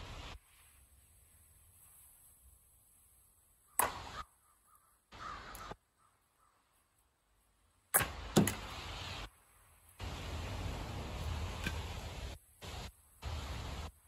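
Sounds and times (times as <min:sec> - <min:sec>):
crow cawing: 0:03.7 - 0:06.7
axe splitting wood: 0:07.9 - 0:08.7.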